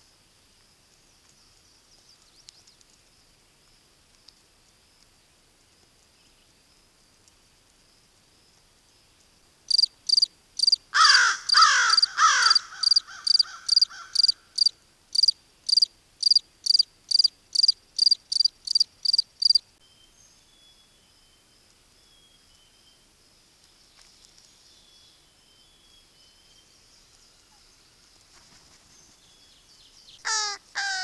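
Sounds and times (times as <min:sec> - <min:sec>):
distant small-bird calls: 0:08.4 - 0:31.0
crows cawing: 0:10.9 - 0:14.6, 0:30.2 - 0:31.0.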